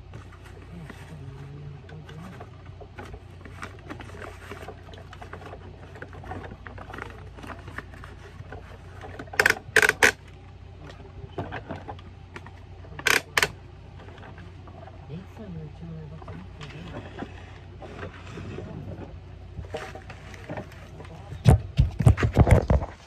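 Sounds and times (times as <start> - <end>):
steady low hum: 0.0 - 23.0
sharp plastic clacks: 2.1 - 10.3, 11.4 - 13.6
plastic toy clicks and rattles: 3.0 - 10.3, 13.0 - 13.6.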